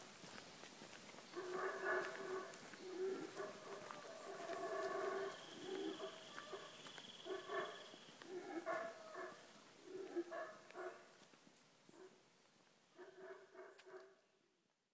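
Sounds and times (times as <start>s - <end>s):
howler monkey roaring: 1.4s - 11.0s.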